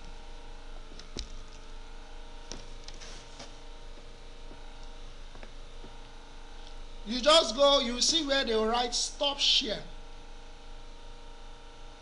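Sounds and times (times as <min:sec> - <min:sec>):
steady electrical hum: 0:00.0 - 0:12.0
soft rustle: 0:03.0 - 0:03.6.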